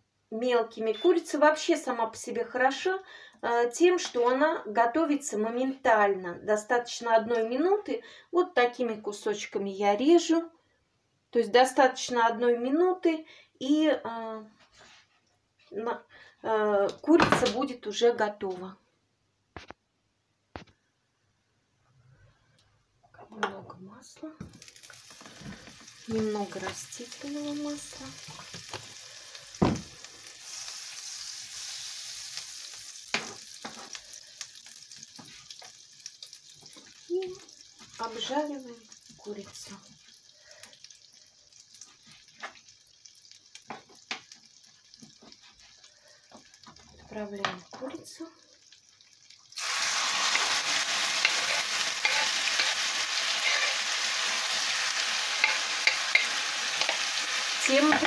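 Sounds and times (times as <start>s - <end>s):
oil sizzling in a frying pan: 24.4s - 58.0s.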